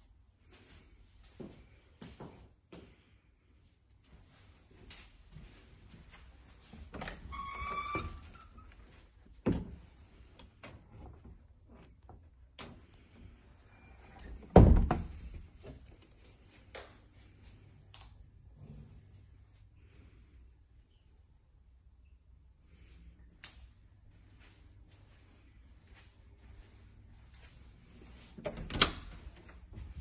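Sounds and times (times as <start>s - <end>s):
cupboard door squeaking: 7.3s - 8.4s.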